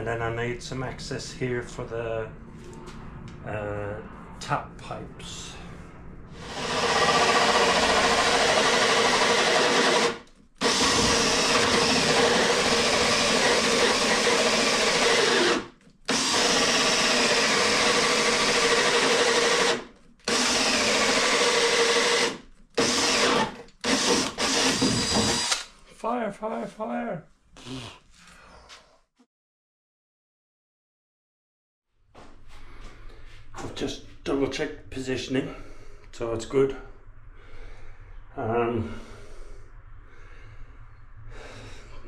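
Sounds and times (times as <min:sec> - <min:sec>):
drill hole saw cutting wood: 0:06.4 - 0:25.7.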